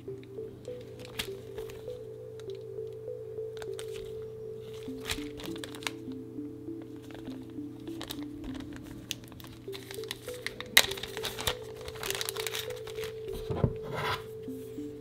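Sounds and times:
background music: 0.0 - 15.0
plastic bag crinkling: 0.6 - 2.6, 3.6 - 6.1, 6.8 - 13.6.

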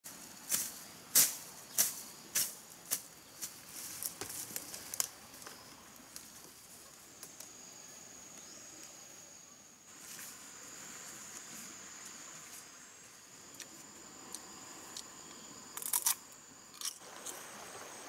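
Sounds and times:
vegetation rustling: 0.1 - 9.0, 9.9 - 15.0
high insect drone: 0.1 - 18.0.

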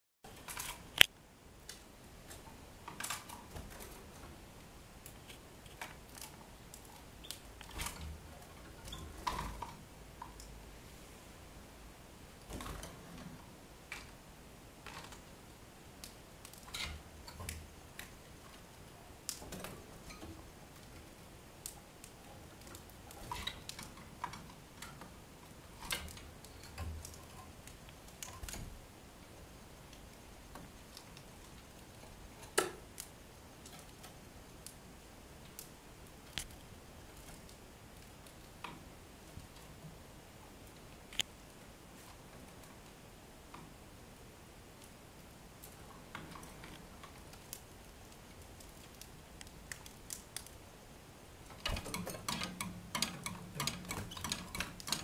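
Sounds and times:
birds tapping in wire cage: 51.5 - 55.0.

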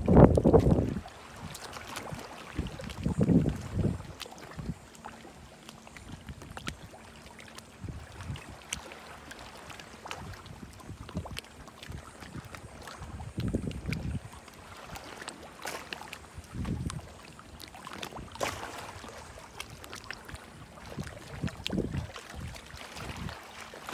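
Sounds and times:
wind gusts on microphone: 0.0 - 1.1, 2.1 - 4.8, 10.2 - 15.0, 16.4 - 17.2, 20.9 - 23.4
water lapping and splashing: 0.0 - 23.9.

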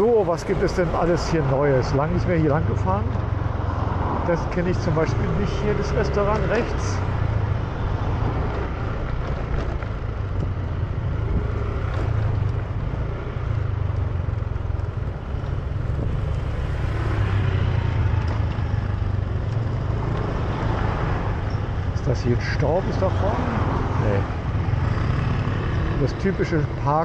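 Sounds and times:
wind rumble on microphone: 9.8 - 12.9, 15.5 - 16.7.

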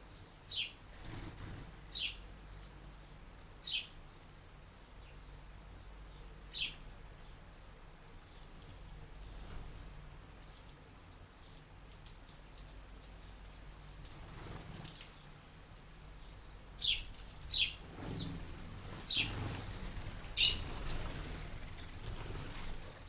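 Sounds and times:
sparrows chirping: 0.0 - 23.0
wings fluttering: 0.9 - 1.8, 8.4 - 10.8, 13.9 - 15.2, 16.8 - 23.0.

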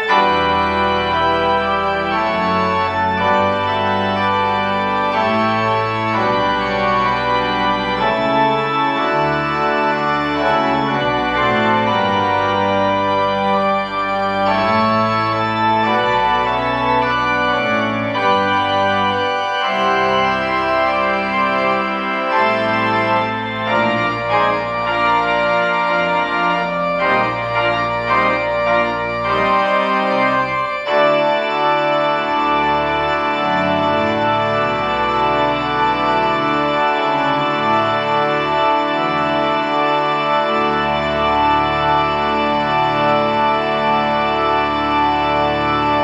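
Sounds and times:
church organ chords: 0.0 - 46.0.

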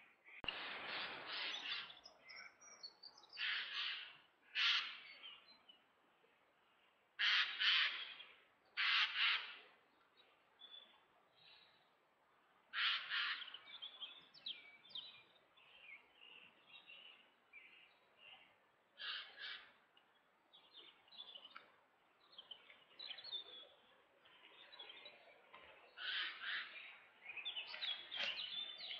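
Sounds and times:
rough bird calls: 3.3 - 5.4, 7.2 - 9.7, 12.7 - 14.2, 19.0 - 19.8, 22.5 - 28.9
birds chirping: 12.7 - 28.9.

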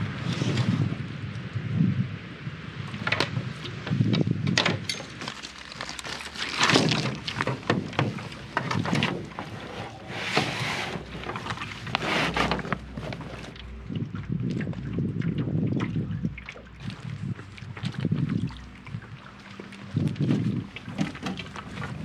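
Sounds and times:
wind on microphone: 0.0 - 22.0
rustling of bags: 4.9 - 13.6
items knocking against canoe hull: 6.6 - 13.6, 20.8 - 22.0.

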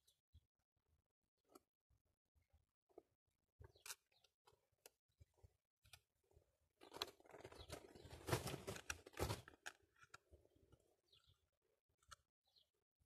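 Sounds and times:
rough rustling and crinkling: 6.8 - 10.2.

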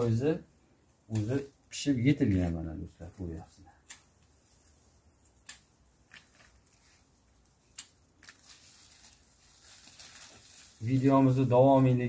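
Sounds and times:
pruning shears snipping: 1.1 - 1.5, 3.8 - 6.5.

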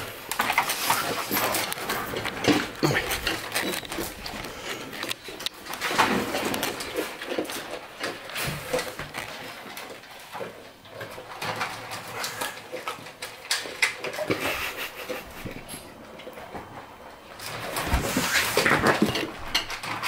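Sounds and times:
dogs crunching dry food: 0.0 - 20.0
metal bowls clattering: 0.0 - 20.0.

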